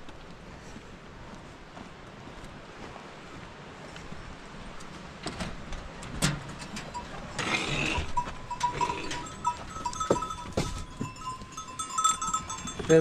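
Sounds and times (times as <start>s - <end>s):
footsteps on gravel: 0.0s - 6.2s, 7.2s - 13.0s
goats and sheep bleating: 7.2s - 13.0s.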